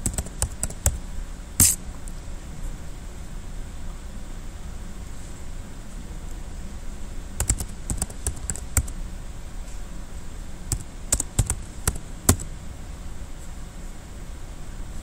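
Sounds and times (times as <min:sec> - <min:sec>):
typing on computer keyboard: 0:00.0 - 0:01.0, 0:07.4 - 0:08.9, 0:10.7 - 0:12.5
low room hum: 0:00.0 - 0:15.0.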